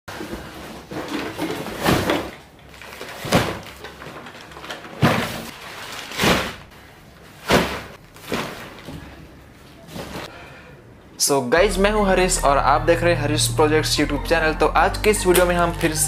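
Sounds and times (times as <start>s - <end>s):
cardboard thumps and scrapes: 7.4s - 8.9s.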